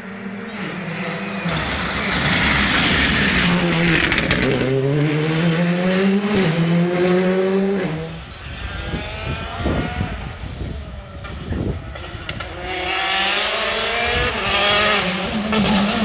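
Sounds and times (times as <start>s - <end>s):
rally car engine at full throttle: 0.0s - 16.0s
distant rally engine revving: 0.2s - 8.2s, 11.9s - 16.0s.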